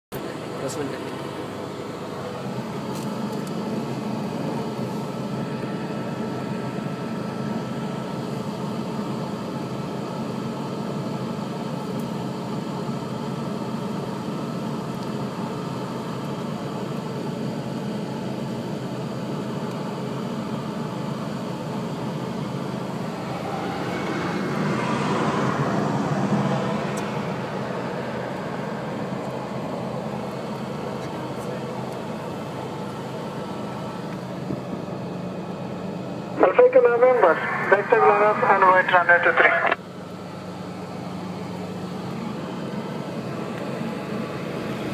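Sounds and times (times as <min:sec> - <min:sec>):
small aircraft engine idling: 0:00.1 - 0:44.9
jet airliner rushing past: 0:21.3 - 0:39.8.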